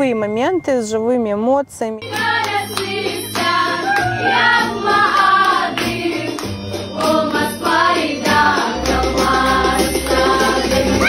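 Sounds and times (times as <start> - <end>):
women singing in harmony: 2.1 - 6.4, 7.0 - 11.0.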